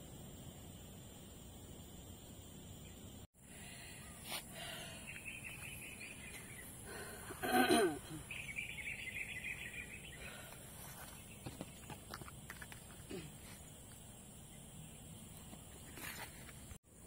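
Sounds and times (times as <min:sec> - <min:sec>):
insect hiss: 0:00.0 - 0:17.0
birds trilling: 0:03.8 - 0:11.9.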